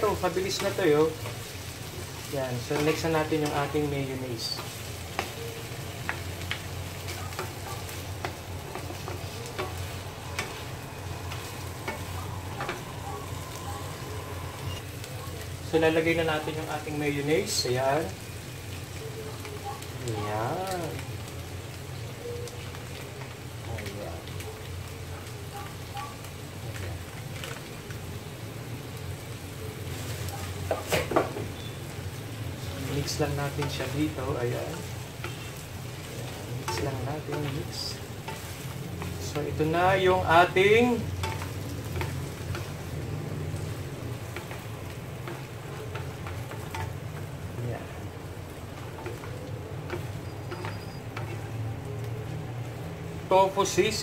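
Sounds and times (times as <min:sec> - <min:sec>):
food sizzling in a frying pan: 0:00.0 - 0:54.0
wooden spatulas knocking pan: 0:11.3 - 0:13.0, 0:40.9 - 0:42.8.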